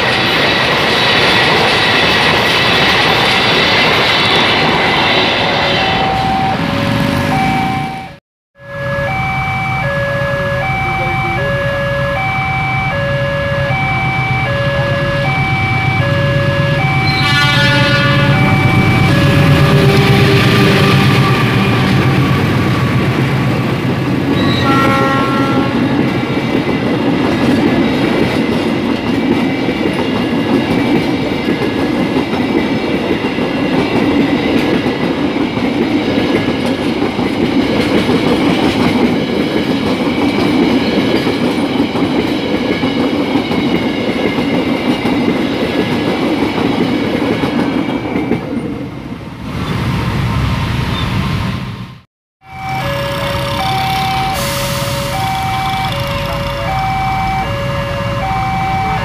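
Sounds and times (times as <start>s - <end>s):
train wheels rumbling on rails: 0.0s - 8.2s, 13.7s - 52.0s, 52.8s - 59.0s
locomotive horn: 5.6s - 22.6s, 24.3s - 26.1s, 52.4s - 59.0s
level crossing alarm chiming: 5.8s - 20.2s, 52.4s - 59.0s.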